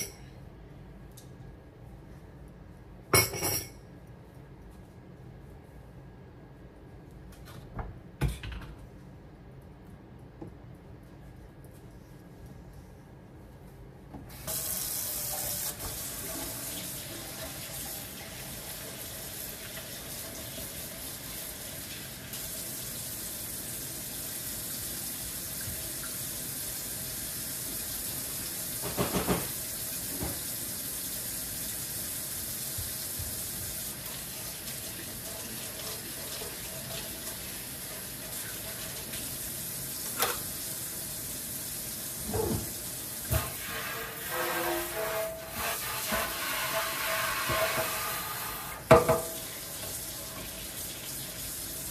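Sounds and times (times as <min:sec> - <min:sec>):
faucet running into metal sink: 0:14.3 - 0:41.1.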